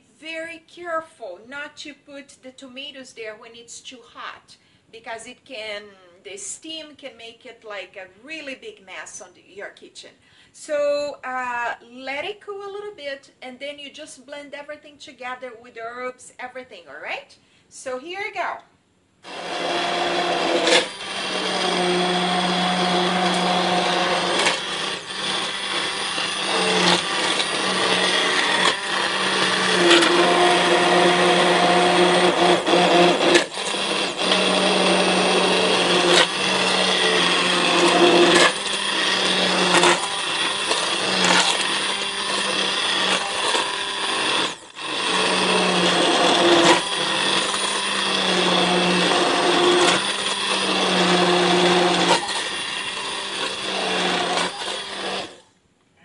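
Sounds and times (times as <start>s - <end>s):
immersion blender motor hum: 19.2s - 55.4s.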